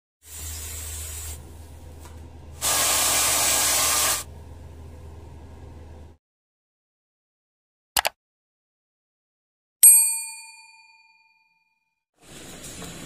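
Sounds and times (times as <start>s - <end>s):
spraying hiss: 2.6s - 4.3s
low hum: 4.2s - 6.2s.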